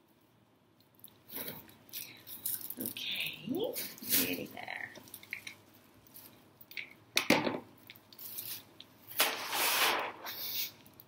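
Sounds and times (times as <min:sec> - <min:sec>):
plastic bag crinkling: 0:03.8 - 0:06.5.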